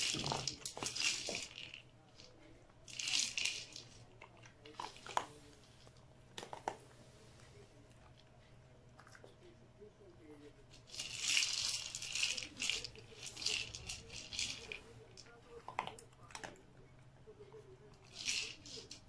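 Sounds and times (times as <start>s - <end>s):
dry food rattling in plastic ball: 0.0s - 5.3s, 10.7s - 16.5s, 18.0s - 19.0s
light clicks of dog eating: 7.4s - 9.6s, 15.2s - 18.1s.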